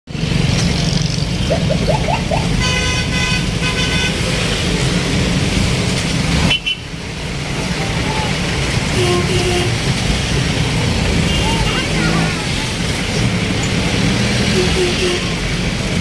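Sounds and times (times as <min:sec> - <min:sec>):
traffic engine rumble: 0:00.1 - 0:16.0
vehicle horn honking: 0:02.6 - 0:04.4, 0:08.9 - 0:09.8, 0:14.5 - 0:15.4.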